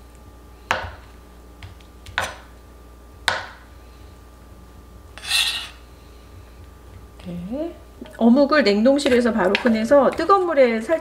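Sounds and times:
knife chopping on cutting board: 0.7 - 2.5, 3.2 - 3.6
knife scraping onto ceramic plate: 5.1 - 5.8.

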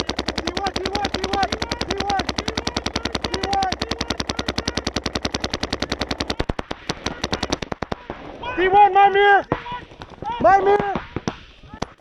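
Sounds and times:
paintball markers firing: 0.0 - 8.2.

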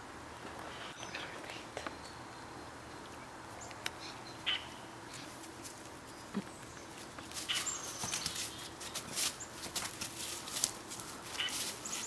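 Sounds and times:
rustling in dry leaves: 3.4 - 12.0.

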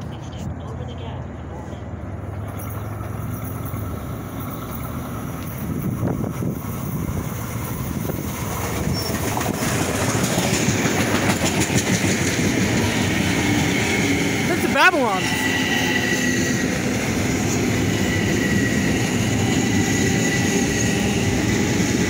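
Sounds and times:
electric train passing: 1.8 - 22.0
wheels clacking over rail joints: 2.1 - 15.0.

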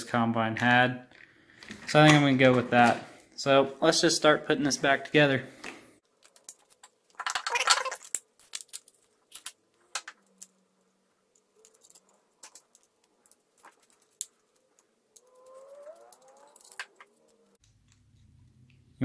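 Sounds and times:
small plastic parts clattering: 6.1 - 17.6.

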